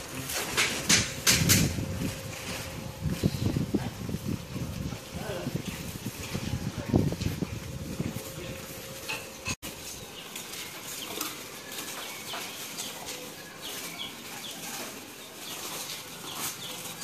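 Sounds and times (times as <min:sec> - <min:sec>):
small birds chirping: 0:08.2 - 0:17.0.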